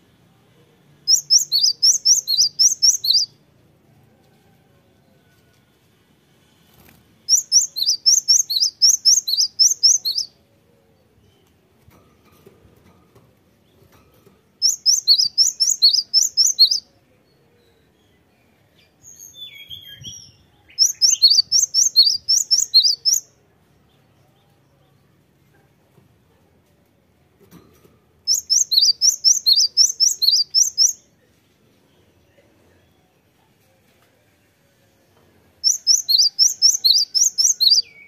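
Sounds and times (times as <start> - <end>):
bird singing high repeated notes: 1.1 - 3.3, 7.3 - 10.3, 14.6 - 16.9, 20.7 - 23.3, 28.3 - 31.0, 35.6 - 38.0.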